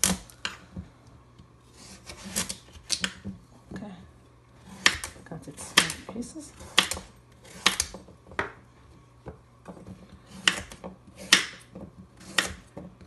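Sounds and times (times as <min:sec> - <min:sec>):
knife chopping squash: 0:01.7 - 0:03.2, 0:04.6 - 0:08.6, 0:10.2 - 0:13.0.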